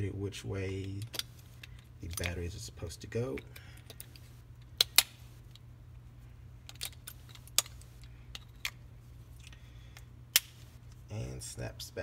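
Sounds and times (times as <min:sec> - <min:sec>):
batteries clicking into compartment: 0:06.6 - 0:08.8.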